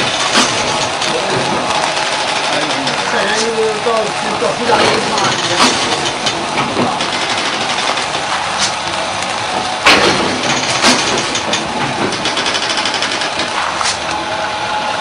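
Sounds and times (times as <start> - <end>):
sharp mechanical knocks: 0.0 - 3.6, 4.7 - 8.8, 9.6 - 14.1
braiding machine clattering: 0.0 - 14.2.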